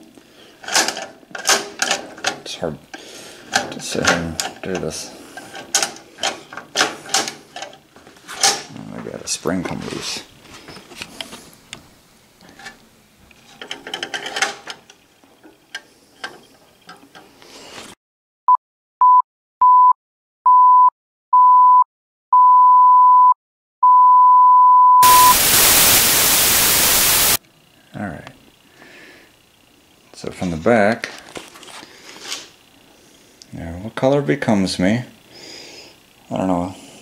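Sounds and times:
test-tone beeps: 22.4 - 25.4
loud static hiss: 25.0 - 27.4.

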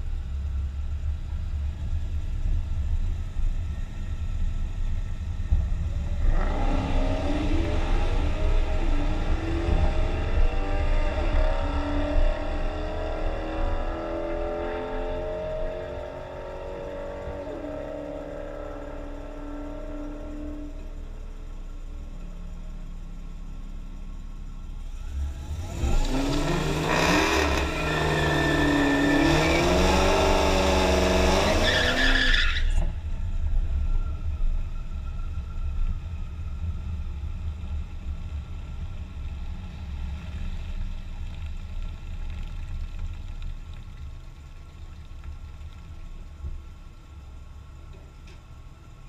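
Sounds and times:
car engine revving: 5.5 - 21.6, 24.8 - 32.9
car engine idling: 18.6 - 26.9, 33.0 - 49.0.

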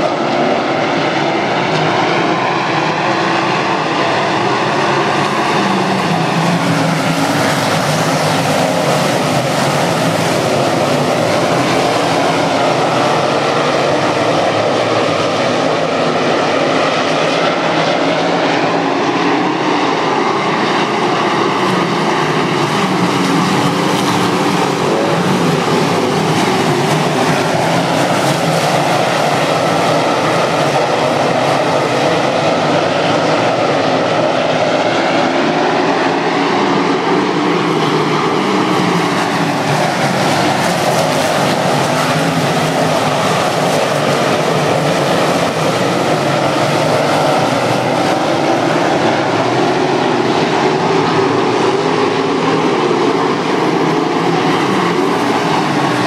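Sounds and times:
race car engines roaring: 0.0 - 56.0.

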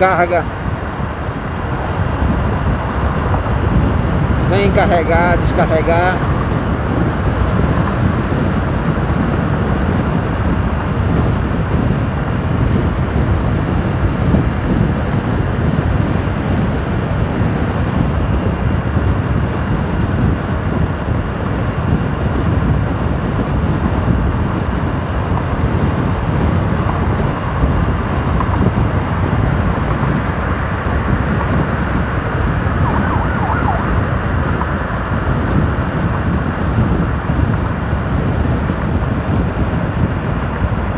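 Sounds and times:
motorcycle engine and tyre noise: 0.0 - 40.9
wind rushing on microphone: 0.0 - 40.9.

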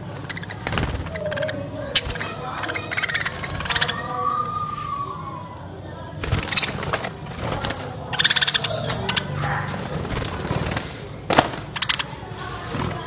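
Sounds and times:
budgerigars chattering: 0.0 - 4.3, 6.3 - 7.0, 7.8 - 10.0, 11.6 - 12.4
rapid scratchy bird chirps: 0.0 - 4.7, 6.2 - 13.0.

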